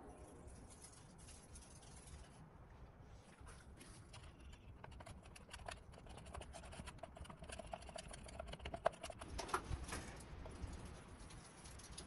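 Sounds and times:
stir stick scraping plastic cup: 4.1s - 9.2s.

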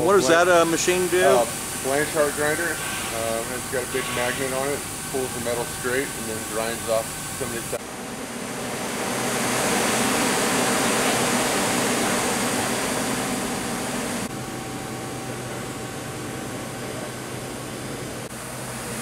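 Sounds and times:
exhaust fan rushing: 0.0s - 19.0s.

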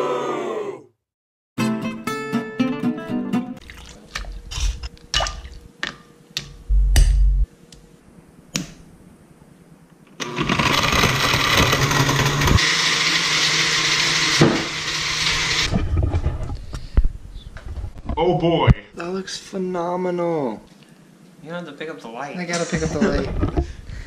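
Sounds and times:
blender running: 10.2s - 15.7s.

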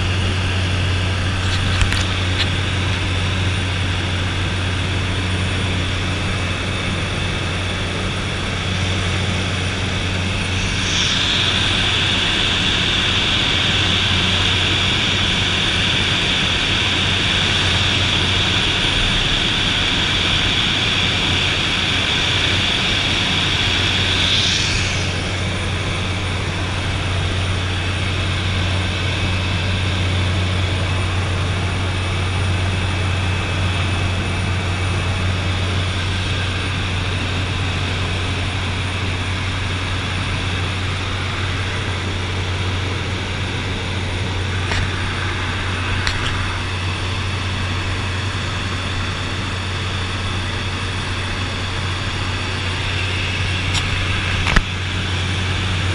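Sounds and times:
propeller plane engine drone: 0.0s - 55.9s
high hiss: 10.4s - 13.8s.

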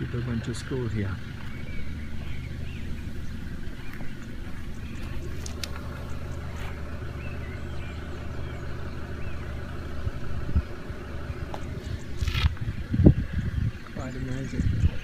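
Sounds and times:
vehicle engine running: 0.0s - 15.0s.

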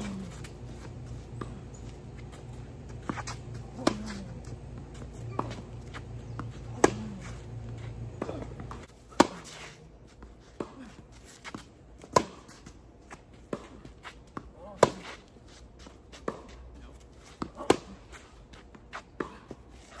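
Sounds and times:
distant racket strokes: 0.0s - 20.0s
low steady hum: 0.0s - 20.0s
racket striking ball: 2.9s - 7.4s, 8.1s - 9.8s, 12.0s - 12.6s, 14.6s - 15.1s, 17.5s - 18.0s.

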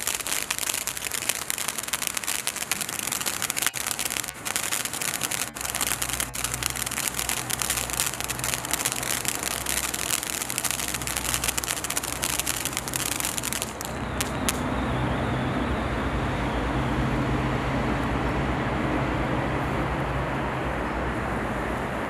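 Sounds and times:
fountain firework crackling: 0.0s - 15.0s.

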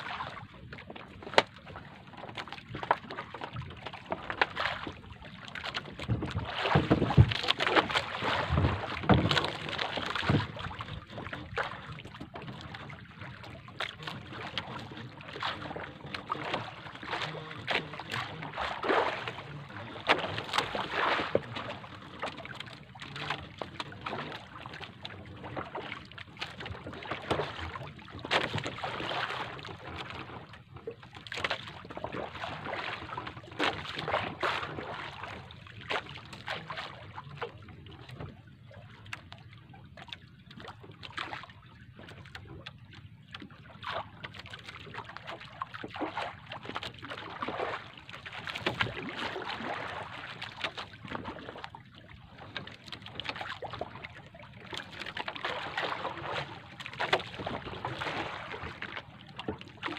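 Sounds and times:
water splashing against boat hull: 0.0s - 59.9s.

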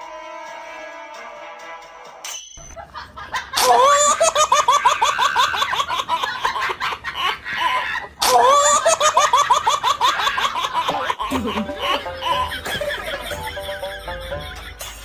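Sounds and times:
high-pitched laughter: 2.8s - 15.0s.

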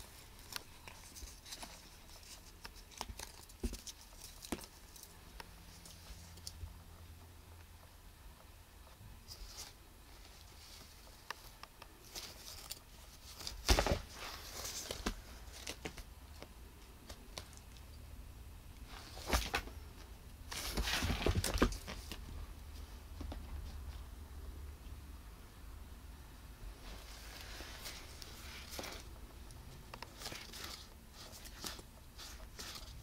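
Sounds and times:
toy rustling on carpet: 9.2s - 17.7s, 26.8s - 29.2s, 29.9s - 33.0s.

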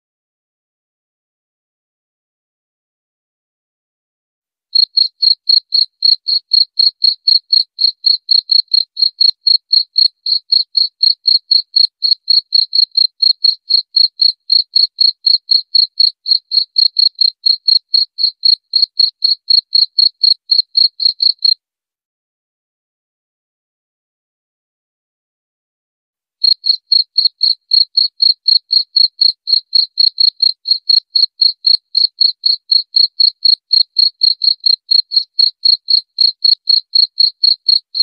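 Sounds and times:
cricket chirping: 4.8s - 21.6s, 26.4s - 38.0s.

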